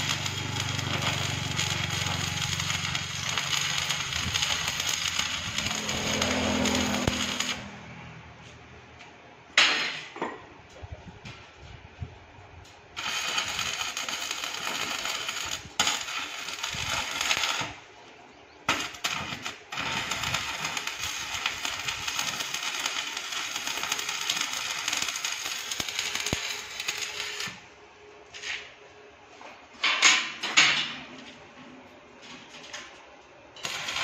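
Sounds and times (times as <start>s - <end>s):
welding arc crackling and sizzling: 0.0s - 8.0s, 12.6s - 17.9s, 18.7s - 27.7s, 33.6s - 34.0s.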